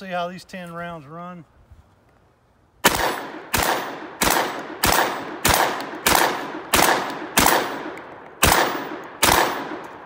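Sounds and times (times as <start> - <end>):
shotgun blasts with echo: 2.8 - 10.0.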